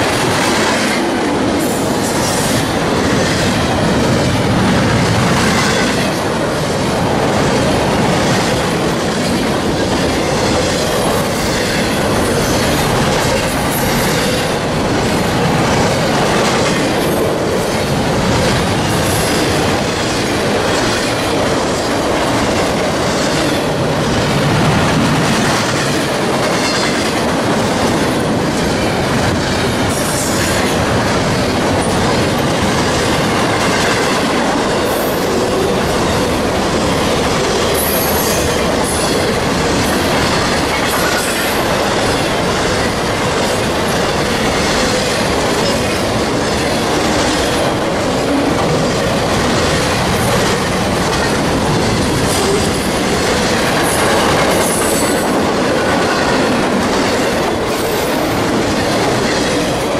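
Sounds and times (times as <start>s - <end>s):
train wheels rumbling and clattering: 0.0s - 59.9s
train wheel squeals: 37.7s - 39.3s.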